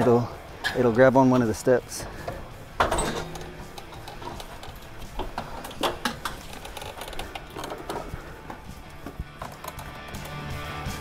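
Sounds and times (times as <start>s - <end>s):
tank bumping against wood: 2.1s - 10.3s.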